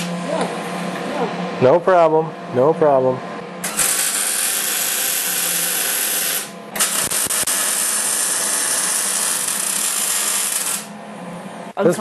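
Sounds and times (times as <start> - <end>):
welder arc sizzling: 0.0 - 1.3, 3.6 - 11.0.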